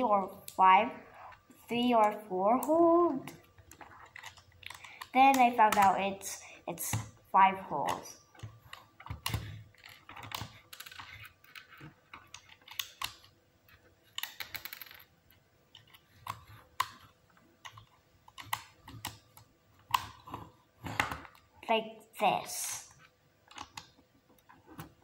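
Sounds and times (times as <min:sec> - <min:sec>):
plastic parts clicking: 0:02.0 - 0:06.0, 0:07.9 - 0:13.4, 0:23.4 - 0:25.0.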